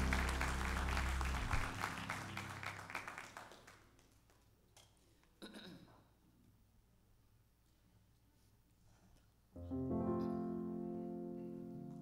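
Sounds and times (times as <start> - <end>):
low musical note ringing: 0.0 - 2.6
congregation applauding: 0.0 - 4.5.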